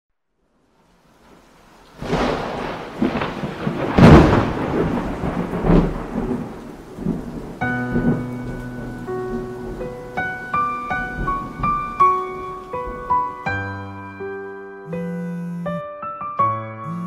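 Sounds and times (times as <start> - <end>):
rain: 0.3 - 14.3
rolling thunder: 1.2 - 13.6
piano playing held notes: 7.6 - 17.0.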